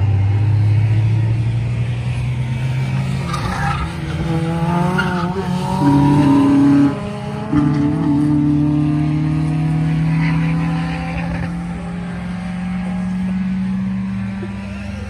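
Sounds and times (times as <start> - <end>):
race car engines accelerating: 0.0 - 15.0.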